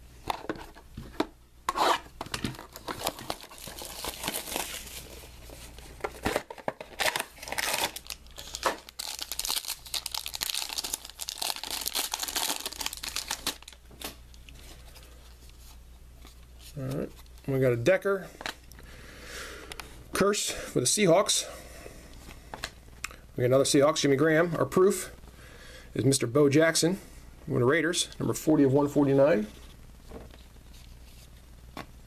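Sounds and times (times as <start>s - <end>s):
foil wrapper tearing and crinkling: 2.6s - 5.2s, 6.9s - 14.2s.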